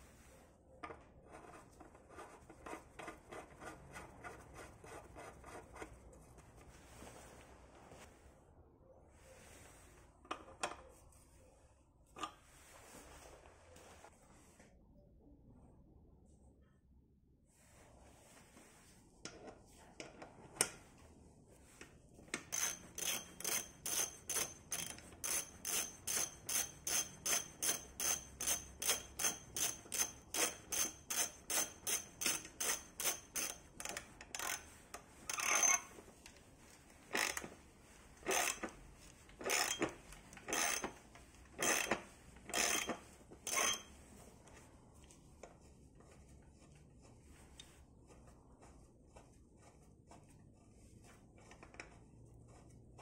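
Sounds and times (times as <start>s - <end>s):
ratchet wrench clicking: 22.5s - 34.6s, 35.3s - 35.8s, 37.1s - 37.4s, 38.3s - 38.7s, 39.4s - 39.9s, 40.5s - 41.0s, 41.6s - 43.9s.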